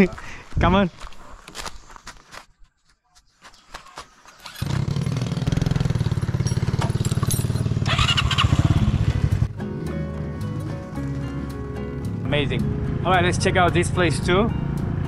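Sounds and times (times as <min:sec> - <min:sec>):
motorcycle engine starting and running: 0:04.4 - 0:09.6, 0:12.2 - 0:15.0.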